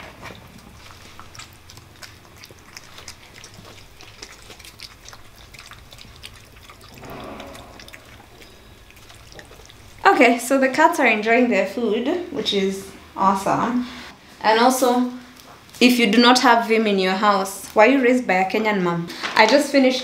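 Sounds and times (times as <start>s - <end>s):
cats chewing and licking: 0.0s - 10.8s.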